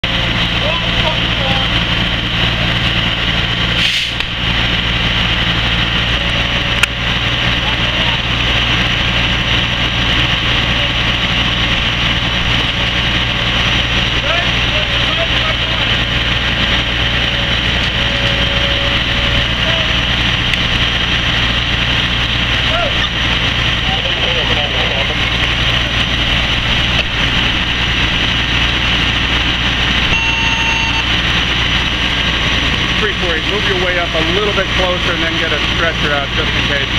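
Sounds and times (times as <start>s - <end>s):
diesel engine humming: 0.0s - 36.9s
hiss: 3.8s - 4.2s
high beep: 30.1s - 31.2s.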